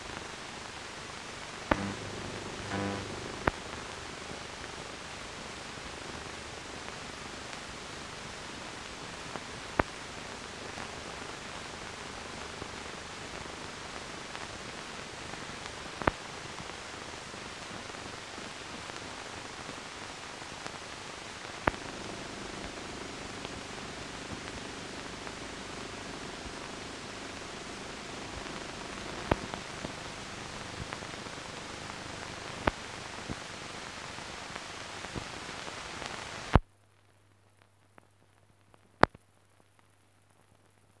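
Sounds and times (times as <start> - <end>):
film soundtrack hiss: 0.0 - 41.0
sharp clicks: 1.7 - 3.6
faint ticks: 1.7 - 3.9, 15.6 - 16.7, 21.6 - 33.4, 37.6 - 41.0
low hum: 1.7 - 4.0.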